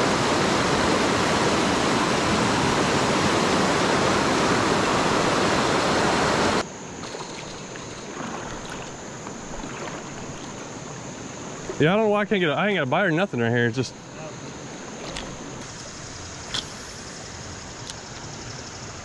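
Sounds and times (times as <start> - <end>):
quiet flow of water: 0.0 - 19.0
water rushing over rocks: 8.1 - 12.8.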